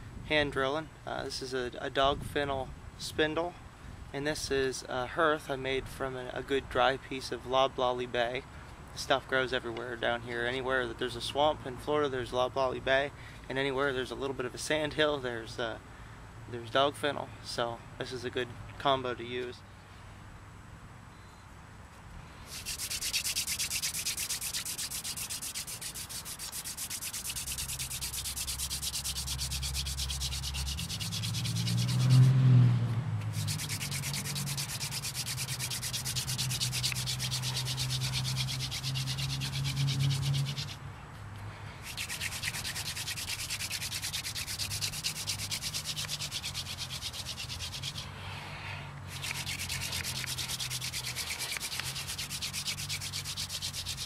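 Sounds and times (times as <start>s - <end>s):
wood-on-wood scratchy rubbing: 22.5s - 32.4s, 33.3s - 40.8s, 41.8s - 48.1s, 49.1s - 54.0s.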